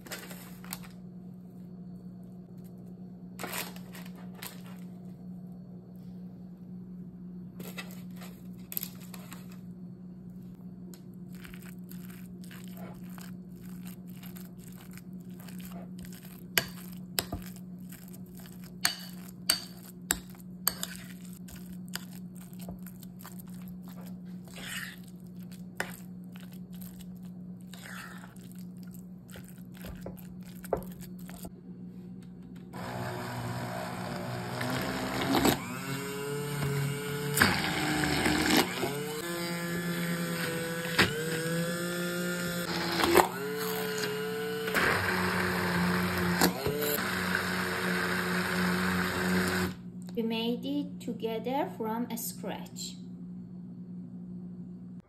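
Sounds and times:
spoon scraping ceramic bowl: 11.4 - 22.8, 23.4 - 26.1, 27.6 - 28.7
immersion blender running: 32.8 - 49.8.

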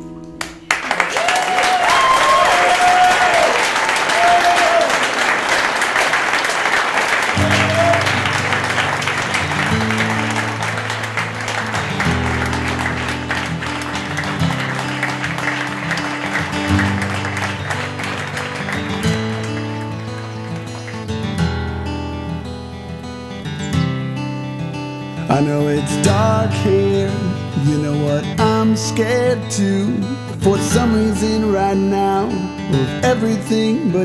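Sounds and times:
music with bass and guitar: 0.0 - 0.8, 7.4 - 34.0
crowd clapping and cheering: 0.2 - 23.6.

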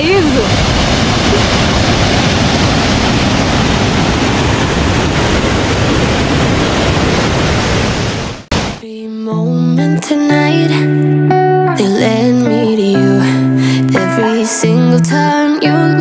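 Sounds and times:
waterfall rushing into pool: 0.0 - 8.8
guitar music: 8.9 - 16.0.

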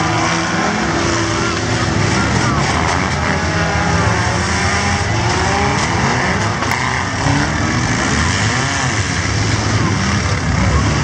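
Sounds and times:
car engines revving: 0.0 - 11.0.

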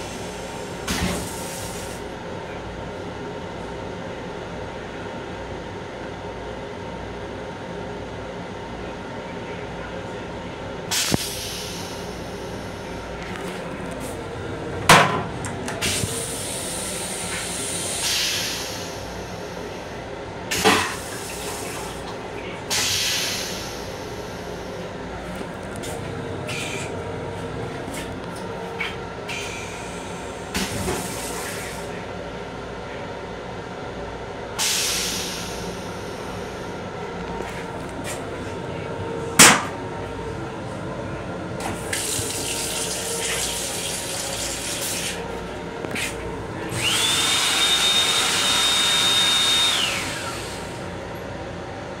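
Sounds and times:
train toilet flushing: 0.0 - 2.6, 10.4 - 32.2, 34.5 - 51.2
train rumbling: 10.1 - 32.9, 34.6 - 47.2
motor whine: 45.4 - 50.8
hand dryer blowing air: 45.9 - 50.8.

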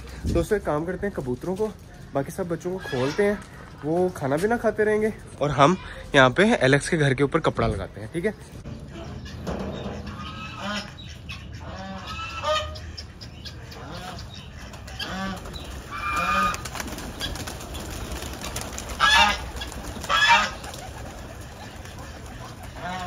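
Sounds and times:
geese honking: 2.6 - 3.6, 8.6 - 23.0.

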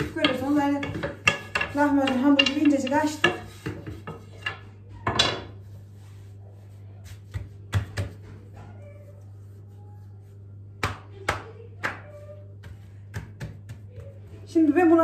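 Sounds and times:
soft taps and slaps on dough: 7.0 - 8.5, 10.7 - 14.5.

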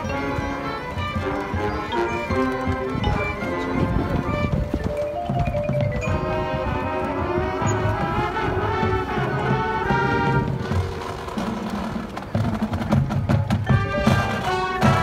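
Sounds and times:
marching band playing: 0.0 - 15.0.

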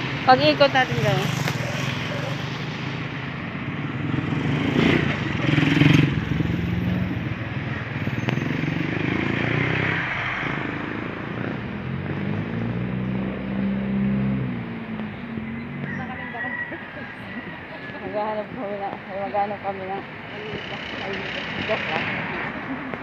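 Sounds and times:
vehicle engine running: 19.4 - 23.0.

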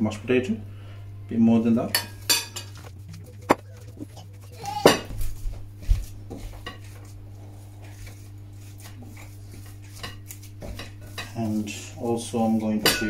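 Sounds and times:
steady low hum: 0.0 - 13.0
hand squeezing mashed potato: 5.9 - 10.6.

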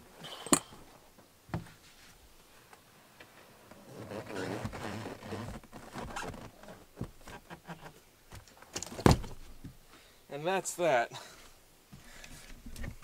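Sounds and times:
vinyl rubbing and scraping: 3.6 - 8.1.

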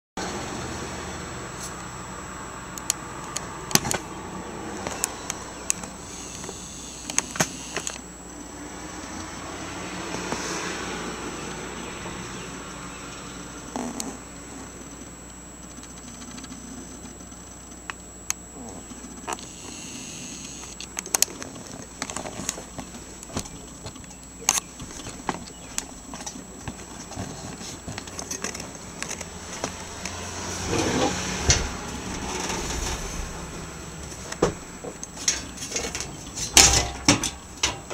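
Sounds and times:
faint high whine: 0.2 - 37.9
steady hiss: 5.3 - 8.2, 14.3 - 37.9.

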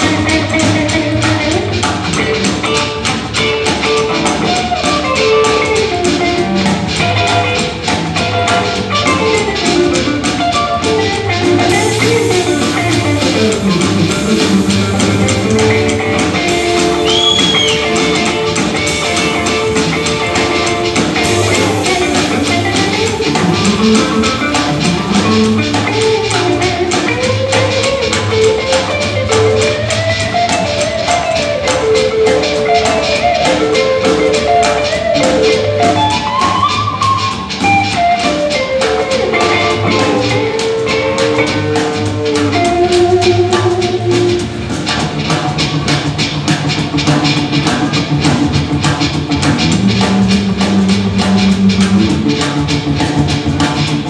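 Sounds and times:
upright bass: 0.0 - 31.8, 38.6 - 54.0
drum kit steady beat: 0.0 - 54.0
electric guitar: 0.0 - 54.0
amplified harmonica: 8.8 - 29.4.

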